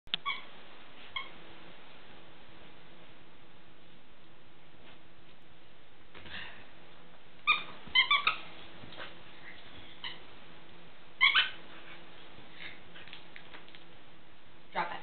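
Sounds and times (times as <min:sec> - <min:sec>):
squeaky toy squeaking: 0:07.5 - 0:08.4, 0:11.2 - 0:11.6.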